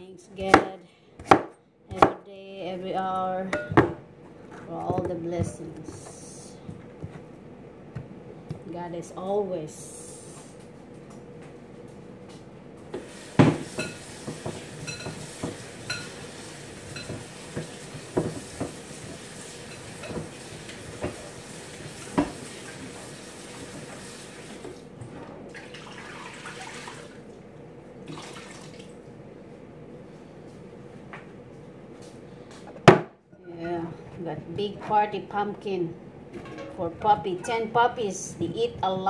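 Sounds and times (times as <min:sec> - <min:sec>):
water running from tap: 0:13.0 - 0:24.8, 0:25.6 - 0:27.2, 0:28.1 - 0:28.9
metal pots and utensils clanking: 0:36.4 - 0:37.8.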